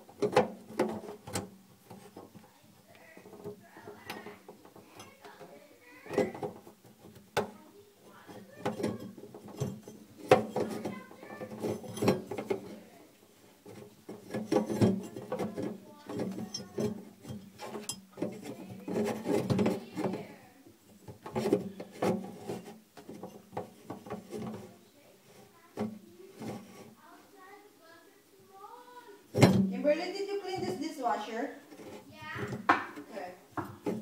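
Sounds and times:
metal ring and gasket handling clatter: 8.2s - 12.6s, 13.7s - 19.8s.

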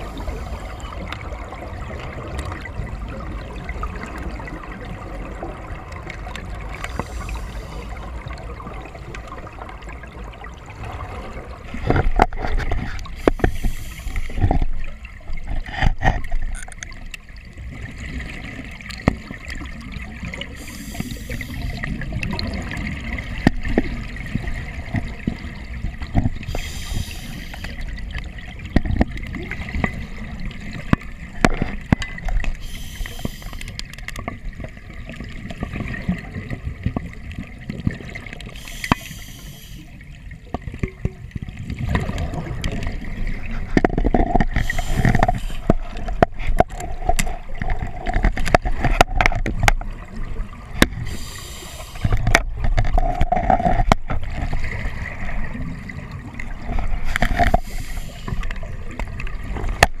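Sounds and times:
gurgling exhaled bubbles: 0.0s - 60.0s
scuba regulator hiss: 13.2s - 14.4s, 20.6s - 21.7s, 26.5s - 27.7s, 32.6s - 33.7s, 38.6s - 39.9s, 44.6s - 45.6s, 51.0s - 52.1s, 57.5s - 58.4s.

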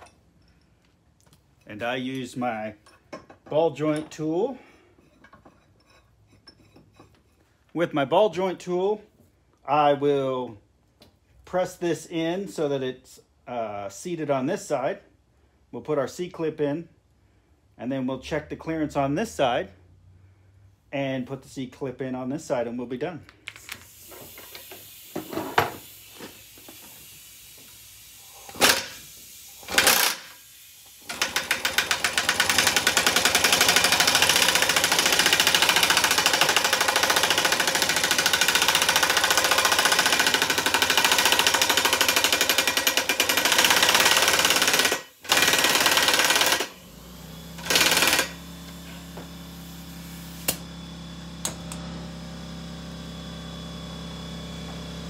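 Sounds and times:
pneumatic impact wrench hammering: 0.0s - 0.5s, 23.7s - 50.8s.

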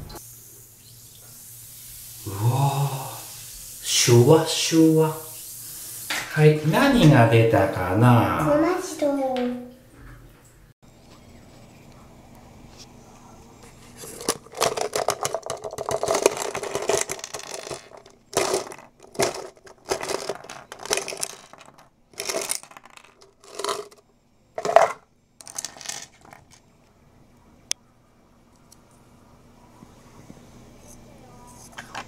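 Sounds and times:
plastic toy figures clattering: 13.9s - 24.0s, 24.6s - 26.6s.

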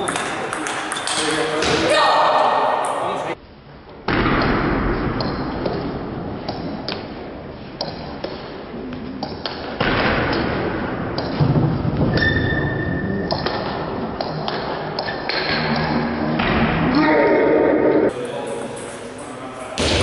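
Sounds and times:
ping pong ball bouncing on table: 0.0s - 1.7s
ping pong ball hitting bats: 0.0s - 1.8s.

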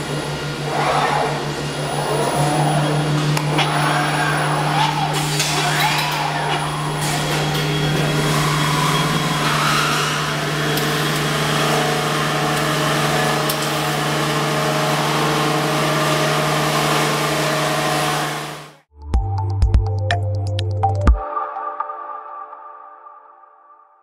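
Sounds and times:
low machinery hum: 0.0s - 18.8s.

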